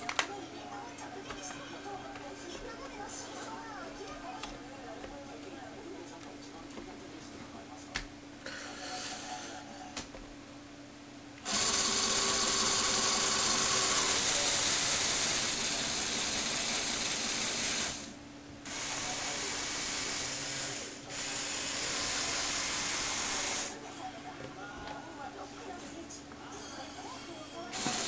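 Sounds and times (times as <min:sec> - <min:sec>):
toy motor and gears whirring: 0:11.4 - 0:18.1, 0:18.7 - 0:23.8, 0:27.7 - 0:28.0.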